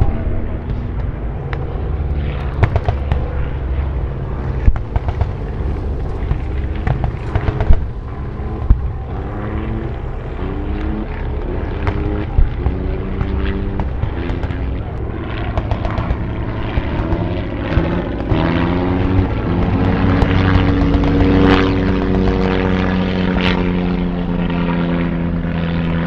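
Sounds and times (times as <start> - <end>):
explosions: 0.0 - 21.4
engines rumbling: 0.0 - 26.0
gunshots: 2.5 - 3.4, 6.2 - 9.8.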